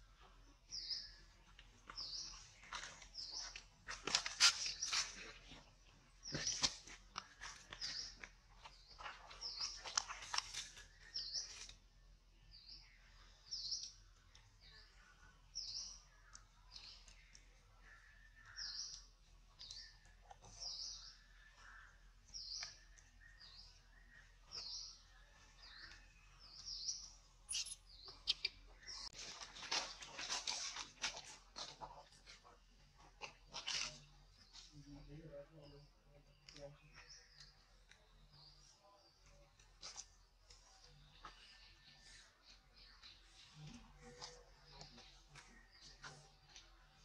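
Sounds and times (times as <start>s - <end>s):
small bird chirping: 12.5s - 29.2s.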